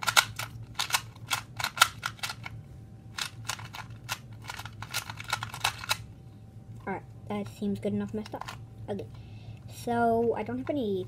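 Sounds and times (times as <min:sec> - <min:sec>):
puzzle cube clicking: 0:00.0 - 0:02.5, 0:03.2 - 0:06.0.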